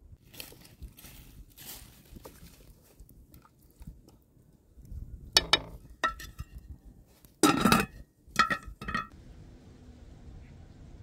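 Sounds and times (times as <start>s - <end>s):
pot lid clattering: 7.4s - 9.1s.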